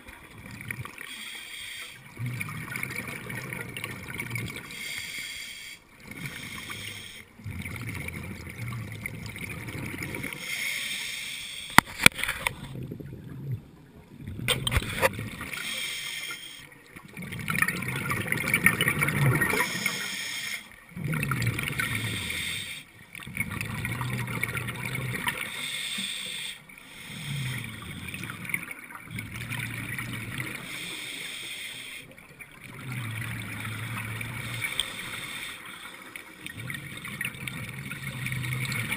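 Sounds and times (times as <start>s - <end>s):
diver exhaling bubbles through regulator: 2.1s - 4.9s, 6.0s - 10.4s, 17.1s - 20.3s, 20.9s - 25.6s, 26.9s - 31.0s, 32.5s - 35.4s, 36.4s - 38.9s.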